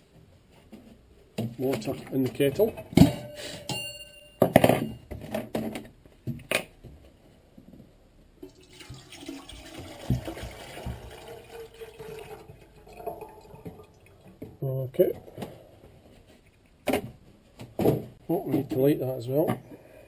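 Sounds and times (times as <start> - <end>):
handling knocks and clatters: 0.5 - 7.9
water pouring into metal kettle: 8.4 - 14.4.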